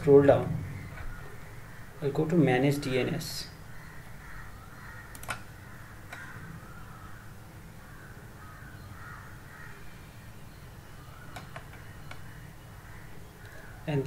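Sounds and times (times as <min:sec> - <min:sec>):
low steady hum: 0:00.0 - 0:14.0
crows cawing: 0:00.6 - 0:02.0, 0:03.6 - 0:09.9, 0:11.8 - 0:13.9
computer mouse clicking: 0:05.1 - 0:05.5.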